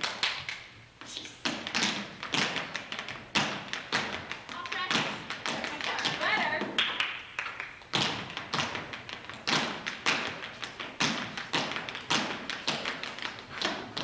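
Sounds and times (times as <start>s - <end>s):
tap shoes on stage floor: 0.0s - 14.0s.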